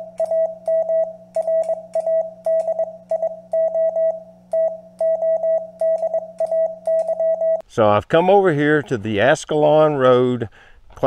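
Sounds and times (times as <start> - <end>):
morse code beeps: 0.0 - 7.6
steady low hum: 0.0 - 11.0.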